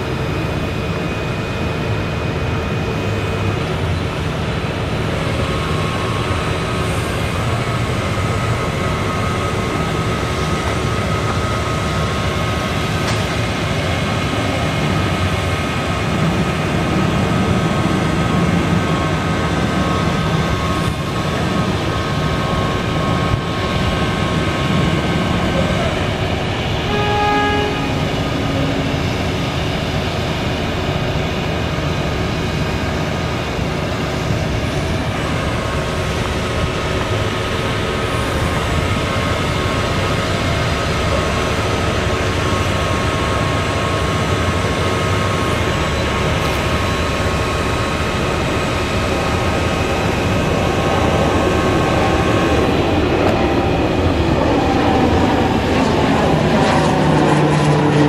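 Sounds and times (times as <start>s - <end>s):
propeller airplane flying over: 0.0s - 58.0s
diesel engine running: 2.9s - 58.0s
hydraulic whine: 25.5s - 30.8s.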